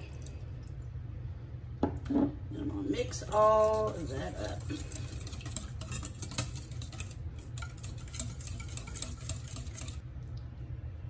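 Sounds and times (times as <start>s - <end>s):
whisk clicking against metal bowl: 3.1s - 10.0s.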